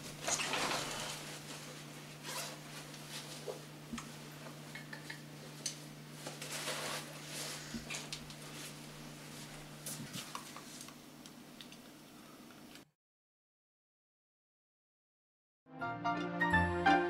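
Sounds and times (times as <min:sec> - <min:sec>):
clothing rustling: 0:06.2 - 0:10.9.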